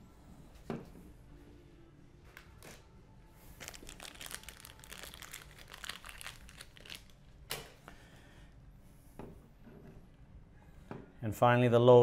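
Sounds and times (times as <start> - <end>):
wire nut crinkling and clicking: 3.6 - 7.7.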